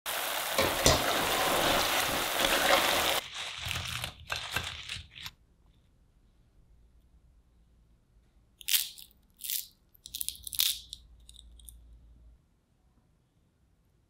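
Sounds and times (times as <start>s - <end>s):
oil sizzling deep-frying: 0.0s - 5.2s.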